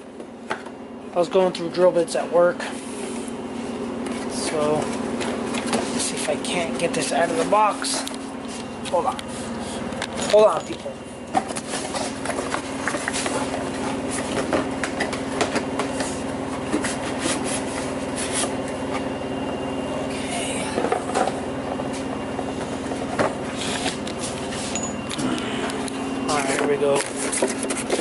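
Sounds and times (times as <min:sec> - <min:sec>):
cardboard rubbing and scraping: 0:11.4 - 0:18.7, 0:26.4 - 0:28.0.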